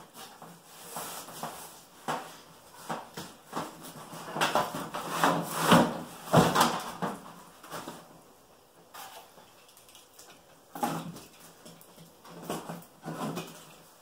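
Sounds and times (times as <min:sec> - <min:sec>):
cardboard scraping on wood: 0:00.1 - 0:06.8.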